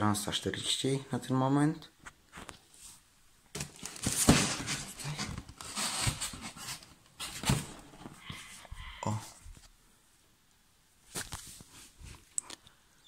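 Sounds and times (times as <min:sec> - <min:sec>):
plastic lid scraping and rustling: 0:03.6 - 0:08.6.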